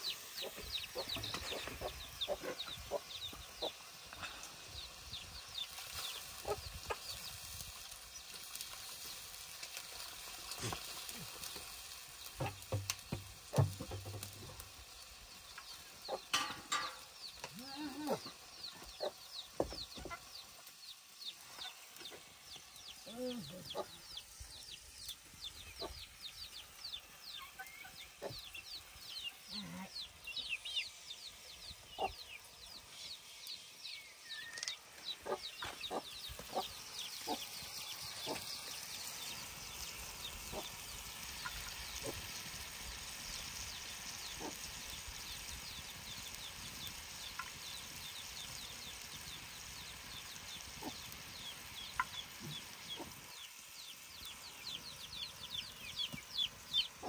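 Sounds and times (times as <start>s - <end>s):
chicks cheeping: 0.0s - 9.4s, 15.4s - 16.3s, 17.0s - 57.0s
frying sizzle: 0.0s - 57.0s
utensil clinking on metal pan: 16.3s - 17.1s.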